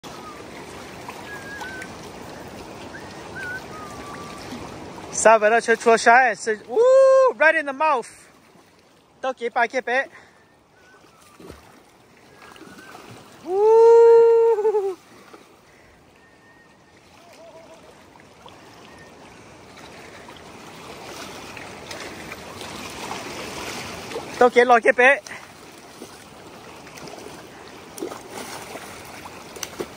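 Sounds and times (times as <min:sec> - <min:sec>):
river water rushing and splashing: 0:00.0 - 0:29.9
person shouting high-pitched: 0:06.7 - 0:07.4.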